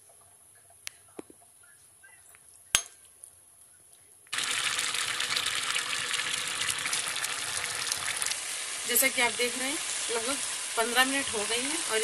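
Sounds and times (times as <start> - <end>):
carrots sizzling and bubbling in pot: 4.3 - 12.0.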